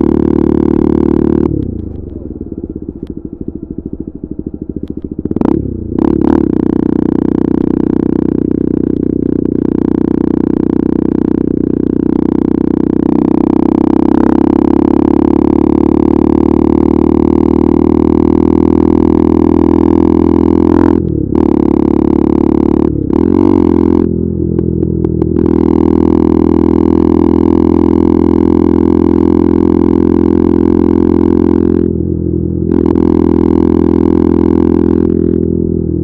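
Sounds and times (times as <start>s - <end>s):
motorcycle engine revving: 0.0s - 36.0s
exhaust cracks: 0.7s - 10.6s, 20.8s - 26.8s.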